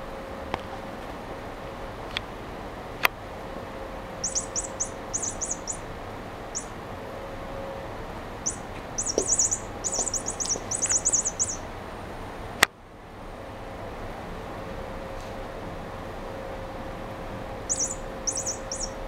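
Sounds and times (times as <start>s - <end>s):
toy mouse chirping: 4.2s - 5.9s, 6.5s - 6.8s, 8.4s - 11.6s, 17.7s - 19.0s.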